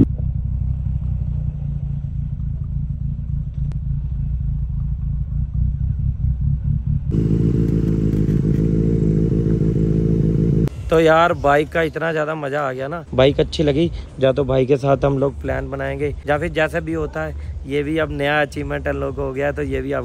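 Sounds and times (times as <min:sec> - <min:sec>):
motorcycle engine running: 0:00.0 - 0:11.6.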